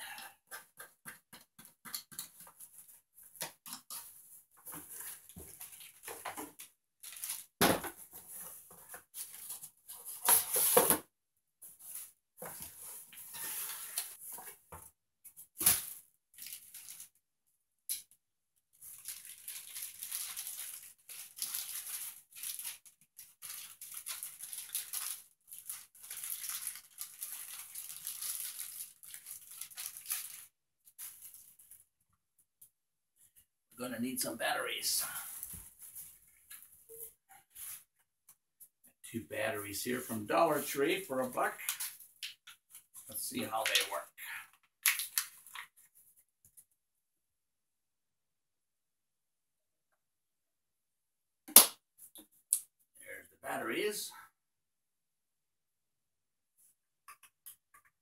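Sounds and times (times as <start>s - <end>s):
cardboard and plastic rustling: 2.5s - 11.0s, 15.5s - 17.1s, 18.8s - 31.8s.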